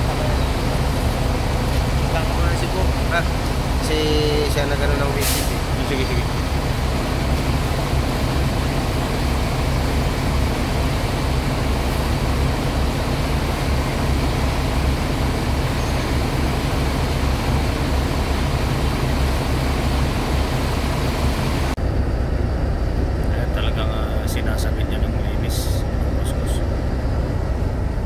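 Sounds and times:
diesel bus engine idling: 0.0s - 28.0s
hiss: 5.2s - 5.7s.

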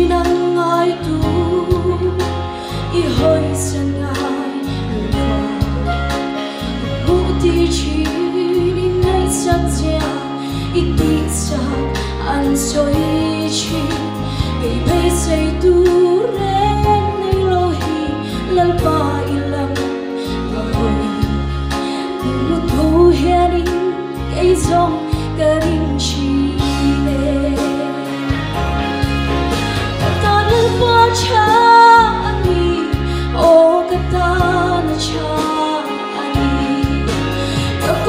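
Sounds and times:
woman singing gospel song: 0.0s - 6.1s, 7.0s - 21.5s, 30.0s - 38.0s
instrumental accompaniment: 0.0s - 38.0s.

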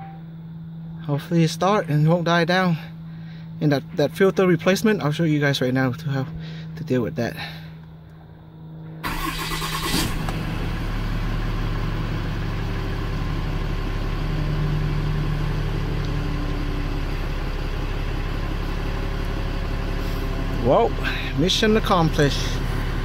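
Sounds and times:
diesel engine cranking and idling: 8.9s - 23.0s.

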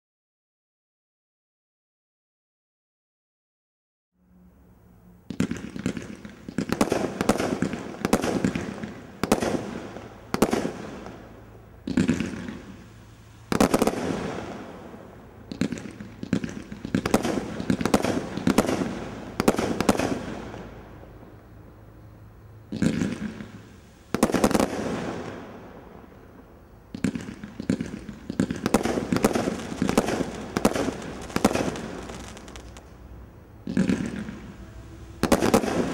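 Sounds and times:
firework bangs and pops: 5.3s - 12.9s, 13.5s - 20.8s, 22.7s - 33.0s, 33.6s - 34.6s, 35.2s - 35.9s.

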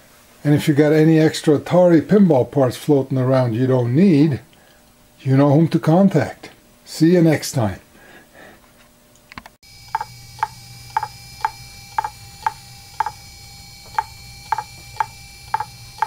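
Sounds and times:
hard drive humming: 9.6s - 16.0s
hard drive heads clicking: 9.8s - 13.3s, 13.9s - 16.0s.

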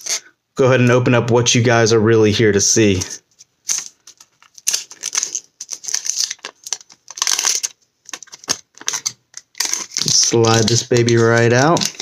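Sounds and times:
plastic wrapping crinkling and tearing: 3.6s - 12.0s.

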